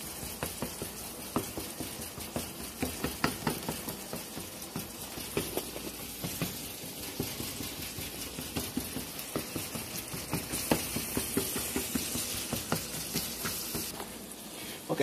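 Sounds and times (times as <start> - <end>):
chopper tapping and scraping pan: 0.0 - 14.1
meat sizzling: 0.0 - 15.0.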